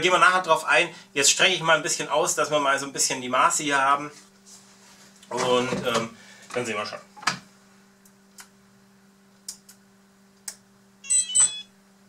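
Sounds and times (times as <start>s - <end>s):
steady low hum: 0.0s - 12.0s
short high chirping beep: 11.0s - 11.7s.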